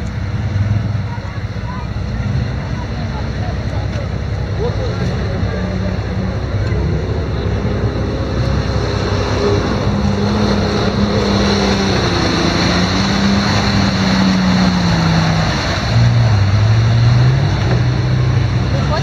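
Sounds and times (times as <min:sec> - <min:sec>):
off-road truck engines running: 0:00.0 - 0:19.0.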